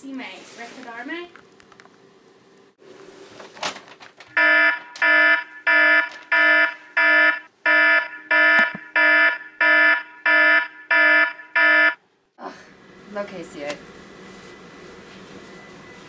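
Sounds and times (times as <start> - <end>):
electronic alarm beeping: 4.4 - 12.0.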